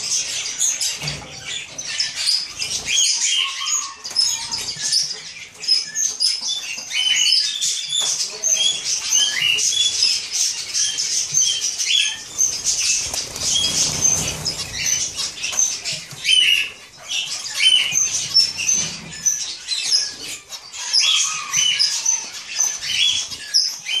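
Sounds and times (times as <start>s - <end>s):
wing flutters: 12.2s - 16.3s.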